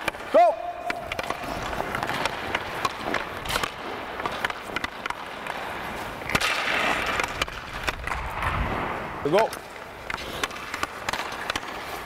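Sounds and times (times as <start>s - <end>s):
sticks clacking on pucks: 0.0s - 8.6s, 9.3s - 12.0s
skates scraping on ice: 0.0s - 12.0s
loud crack: 6.2s - 9.0s.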